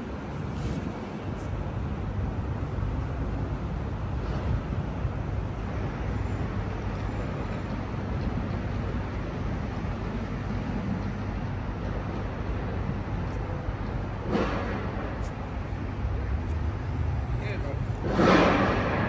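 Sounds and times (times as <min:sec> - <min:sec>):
station hall rumble and hum: 0:09.4 - 0:19.0.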